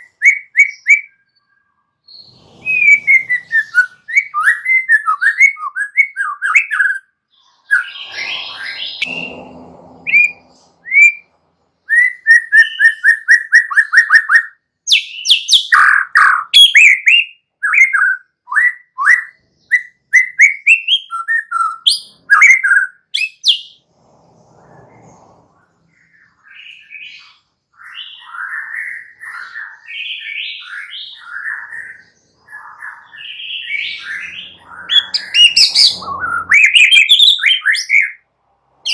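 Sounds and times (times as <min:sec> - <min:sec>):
songbird singing whistled phrases: 0:00.0 - 0:09.1, 0:11.9 - 0:23.8.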